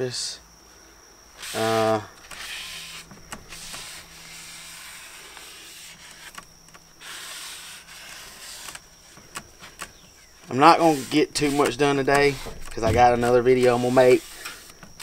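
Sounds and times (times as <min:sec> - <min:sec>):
cloth rag rubbing on metal: 0:01.4 - 0:06.3, 0:07.0 - 0:08.8, 0:10.4 - 0:14.7.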